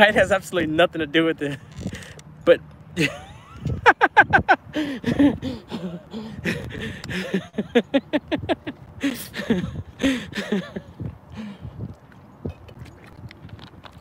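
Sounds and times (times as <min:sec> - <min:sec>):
man laughing heartily: 0:03.0 - 0:11.1.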